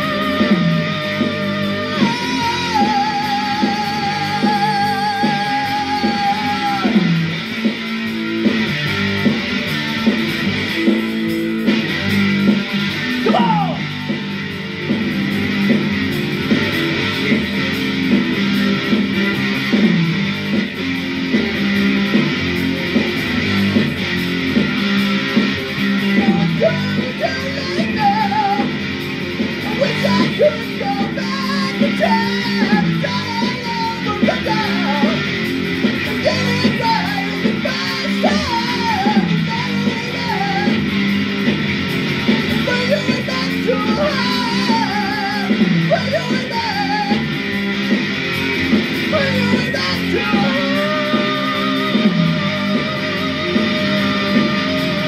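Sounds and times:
person singing: 0:00.0 - 0:07.2, 0:13.2 - 0:14.3, 0:26.0 - 0:28.8, 0:29.6 - 0:35.3, 0:36.1 - 0:40.9, 0:42.2 - 0:47.4, 0:49.0 - 0:55.0
electric guitar: 0:00.0 - 0:55.0
rock music: 0:00.0 - 0:55.0.

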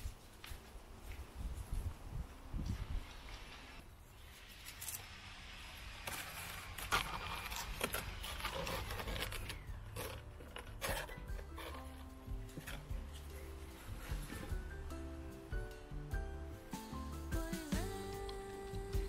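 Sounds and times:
leaves and stalks rustling: 0:00.0 - 0:14.9.

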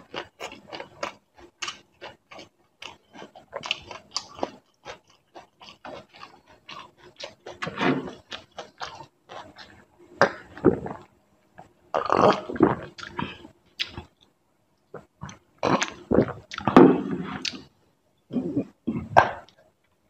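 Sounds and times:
person chewing: 0:00.0 - 0:14.3, 0:14.9 - 0:17.7
person gulping water: 0:10.2 - 0:14.1, 0:15.0 - 0:17.7, 0:18.3 - 0:19.6.

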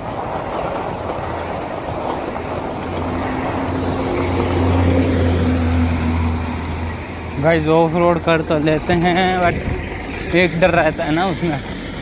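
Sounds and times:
bicycle tyres on gravel: 0:00.0 - 0:12.0
passing vehicle engine hum: 0:00.0 - 0:12.0
wind buffeting microphone: 0:08.1 - 0:11.0.

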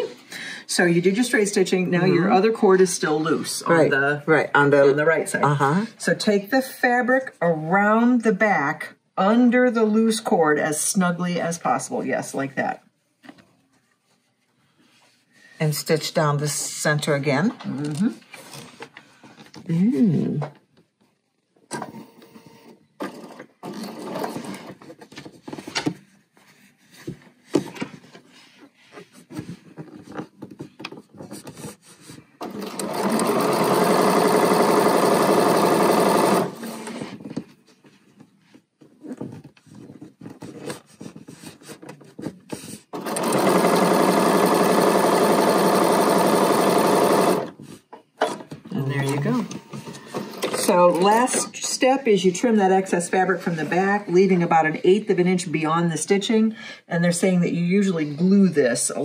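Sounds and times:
sewing machine stitching: 0:21.7 - 0:24.9, 0:32.4 - 0:37.0, 0:42.9 - 0:47.6.

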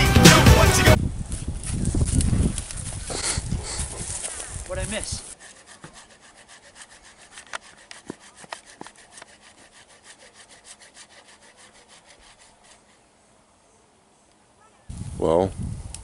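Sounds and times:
hand saw cutting wood: 0:03.1 - 0:13.1.

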